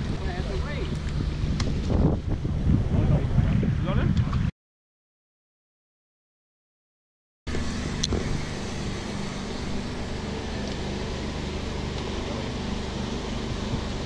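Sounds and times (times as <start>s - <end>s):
boat engine idling: 0.0s - 2.6s, 7.5s - 14.0s.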